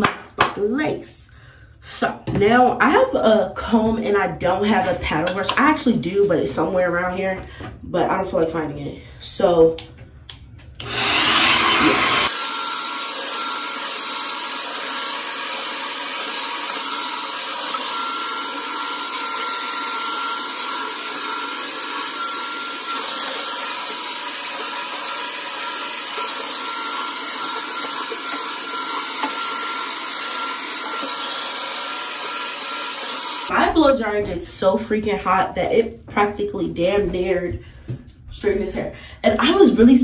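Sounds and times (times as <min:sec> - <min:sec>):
hair dryer blowing air: 0:10.8 - 0:33.5.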